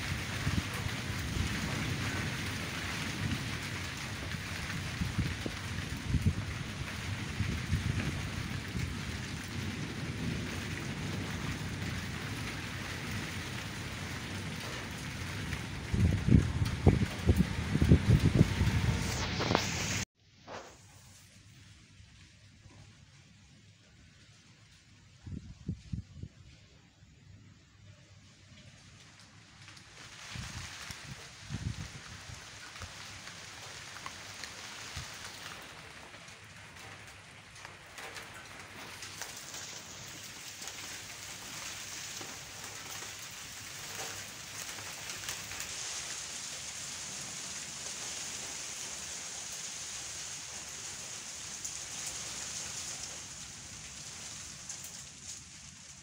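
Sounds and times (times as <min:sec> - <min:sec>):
rumble of thunder: 0:00.0 - 0:20.0, 0:30.2 - 0:49.8
rain falling: 0:00.0 - 0:20.1, 0:20.9 - 0:56.0.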